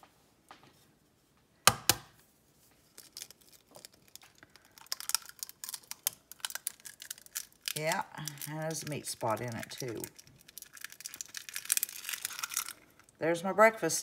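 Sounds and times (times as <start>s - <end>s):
egg cracking knock: 1.6s - 2.1s
eggshell crackling: 2.7s - 13.9s.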